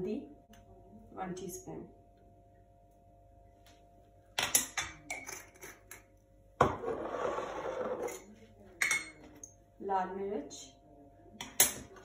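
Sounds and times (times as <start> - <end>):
metal spoon clinking on pot: 4.4 - 6.1
objects clattering on counter: 4.4 - 9.2.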